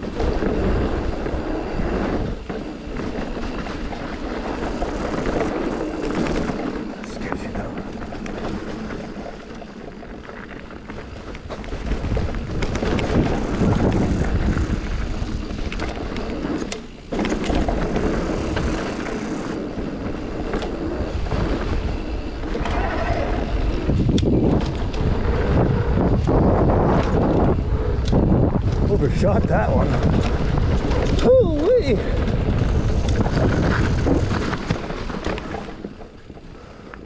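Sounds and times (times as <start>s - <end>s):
bike rattling: 0.0s - 37.0s
bike tyres rumbling: 0.0s - 37.0s
wind buffeting microphone: 0.0s - 37.0s.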